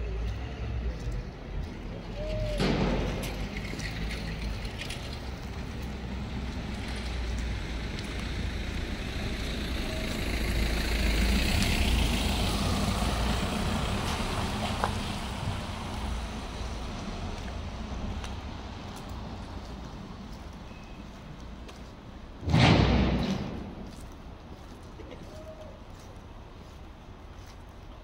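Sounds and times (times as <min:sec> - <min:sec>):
vehicle engine rumble: 0:00.0 - 0:28.0
tyre hiss on wet street: 0:05.5 - 0:21.0.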